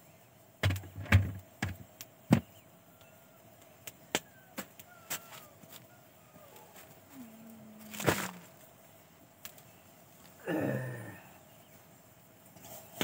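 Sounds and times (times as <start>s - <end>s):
sharp knocks with dull thuds: 0.6s - 2.6s.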